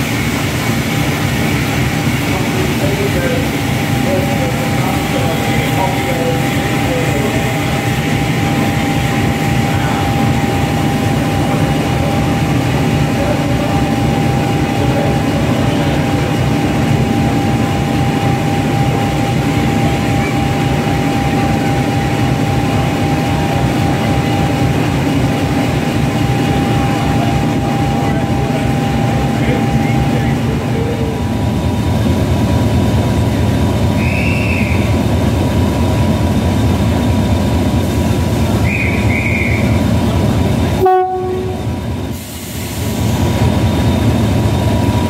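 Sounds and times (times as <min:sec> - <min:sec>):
train engine low rumble: 0:00.0 - 0:45.0.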